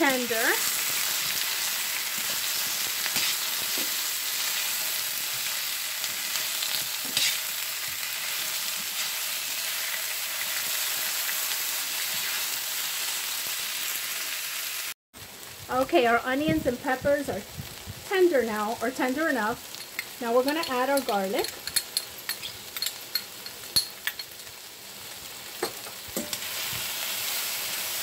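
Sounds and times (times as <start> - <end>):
vegetables sizzling in oil: 0.0 - 28.0
tongs scraping a pan: 0.6 - 4.8, 6.4 - 8.0, 19.7 - 24.4.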